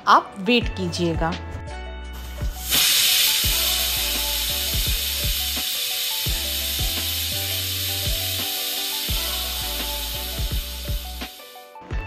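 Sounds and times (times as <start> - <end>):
background music with a beat: 0.6 - 12.0
pressure cooker hissing steam: 2.5 - 11.6.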